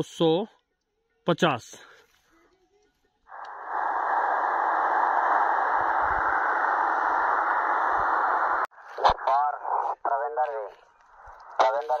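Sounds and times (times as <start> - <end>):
radio static hiss: 3.3 - 12.0.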